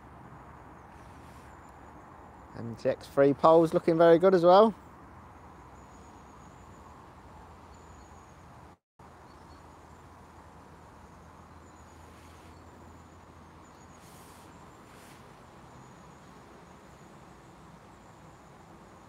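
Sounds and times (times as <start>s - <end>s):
faint steady hiss: 5.6s - 19.0s.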